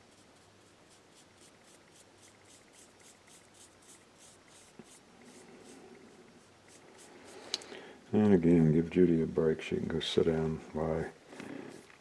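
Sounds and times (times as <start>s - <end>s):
paintbrush scratching on wood: 0.0s - 7.4s.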